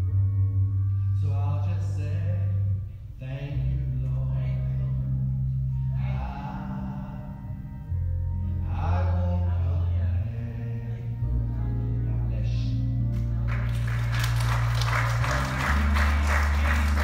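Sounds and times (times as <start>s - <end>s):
church music with low bass chords: 0.0s - 17.0s
congregation applauding: 13.2s - 17.0s.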